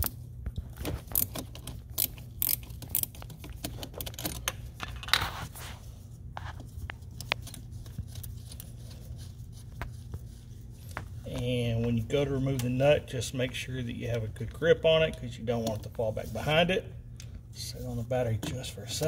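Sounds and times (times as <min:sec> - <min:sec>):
ratcheting wrench clicking: 0:01.2 - 0:04.6.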